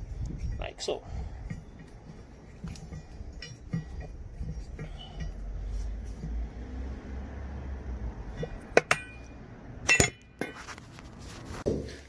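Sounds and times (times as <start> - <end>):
sharp metallic clinks: 0.0 - 6.4, 8.2 - 10.4.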